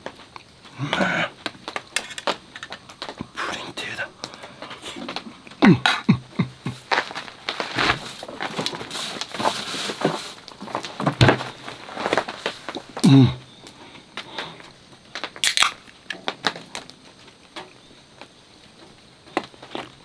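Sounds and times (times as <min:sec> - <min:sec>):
drink can cracked open: 0:01.7 - 0:03.2, 0:15.2 - 0:16.9
rummaging in a cooler box: 0:06.8 - 0:13.0.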